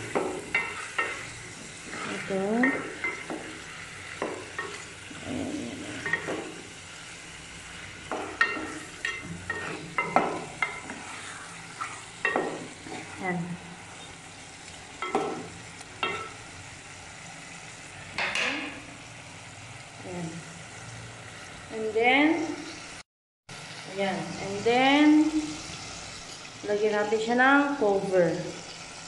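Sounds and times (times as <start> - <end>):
wooden spoon scraping a pot: 0.0 - 6.6, 8.1 - 14.2
chicken sizzling in oil: 0.0 - 29.0.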